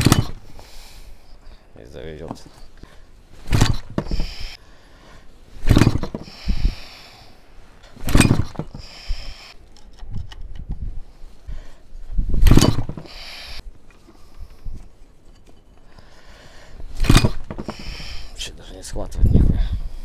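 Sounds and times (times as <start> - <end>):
starter rope pull rasp: 3.4 - 4.6, 5.6 - 6.9, 17.0 - 18.4.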